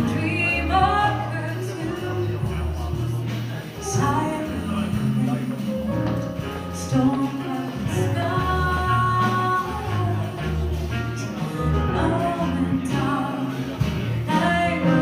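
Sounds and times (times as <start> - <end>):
live jazz band playing: 0.0 - 15.0.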